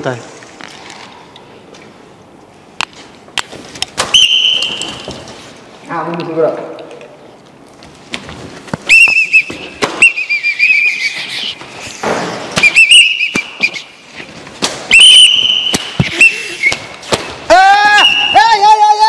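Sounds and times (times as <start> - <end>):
sharp knocks and slaps: 2.8 - 5.3, 9.5 - 10.2, 12.0 - 13.8, 14.5 - 17.5
pea whistle trilling blasts: 4.1 - 4.9, 8.9 - 11.5, 12.6 - 14.0, 14.9 - 16.9, 17.9 - 18.6.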